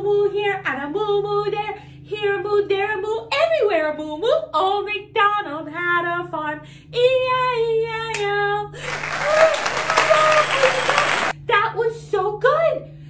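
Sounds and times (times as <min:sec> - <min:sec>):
cheering and clapping: 0:08.8 - 0:11.4.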